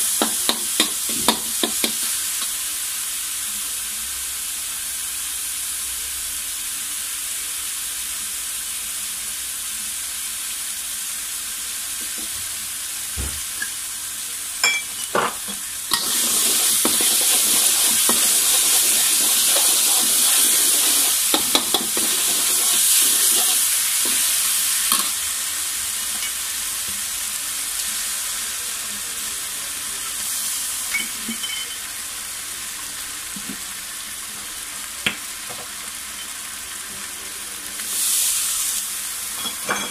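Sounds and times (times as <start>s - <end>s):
garlic sizzling in hot oil: 0.0s - 39.9s
spatula scraping and tapping pan: 0.2s - 2.1s, 15.4s - 24.2s.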